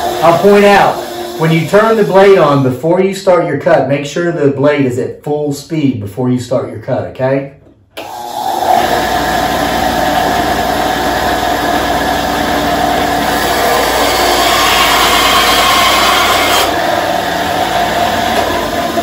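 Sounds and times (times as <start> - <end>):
saw blade cutting wood: 0.0 - 2.6, 13.1 - 19.0
bandsaw motor whine: 0.0 - 2.7, 8.0 - 19.0.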